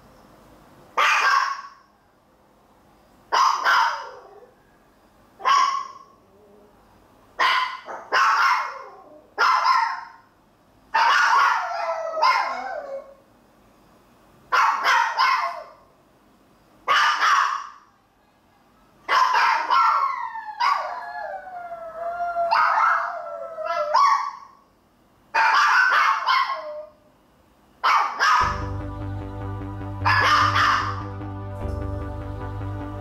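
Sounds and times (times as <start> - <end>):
small dog yapping: 1.0 - 1.8, 3.3 - 4.5, 5.4 - 6.2, 7.4 - 10.2, 11.0 - 13.2, 14.5 - 15.8, 16.9 - 17.8, 19.1 - 21.1, 22.4 - 24.6, 25.4 - 27.0, 27.8 - 28.4
dog crying: 11.0 - 13.2, 19.2 - 24.5.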